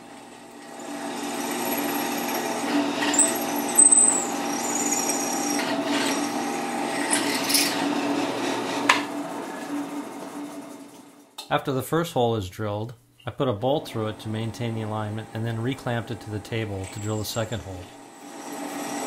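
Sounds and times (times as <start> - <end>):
drill press motor hum: 0.0 - 11.2, 13.9 - 19.0
high-pitched whine of drill bit: 0.7 - 7.8, 16.8 - 17.6.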